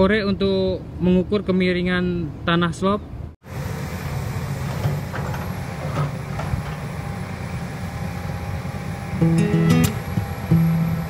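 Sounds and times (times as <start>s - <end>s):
excavator diesel engine running: 3.5s - 11.0s
guitar music: 9.2s - 11.0s.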